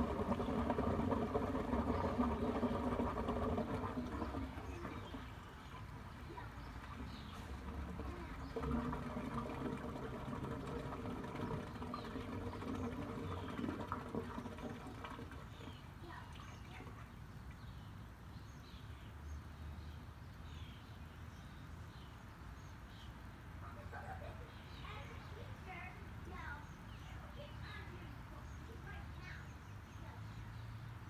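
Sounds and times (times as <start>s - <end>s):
trickling water: 0.0s - 18.3s
small birds chirping: 0.2s - 31.0s.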